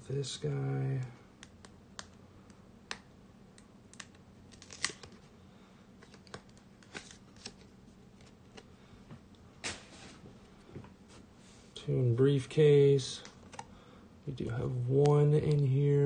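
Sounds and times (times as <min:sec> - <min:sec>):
package crinkling and clicking: 0:03.9 - 0:05.2, 0:06.0 - 0:08.7.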